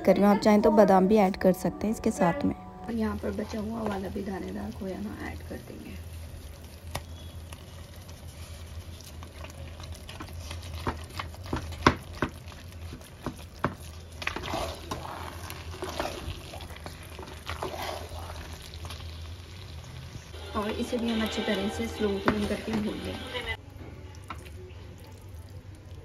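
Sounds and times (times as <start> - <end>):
spoon stirring thick food: 6.0 - 19.1.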